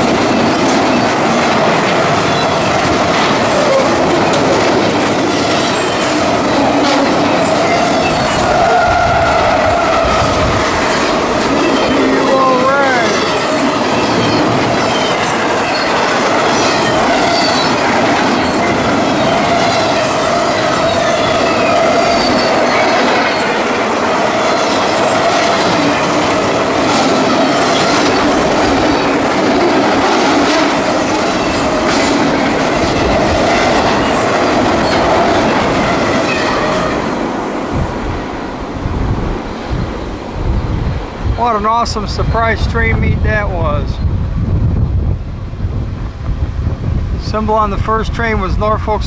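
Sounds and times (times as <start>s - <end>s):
train wheels clacking over rail joints: 0.0s - 38.2s
train wheels squealing: 7.4s - 11.0s, 11.6s - 23.6s.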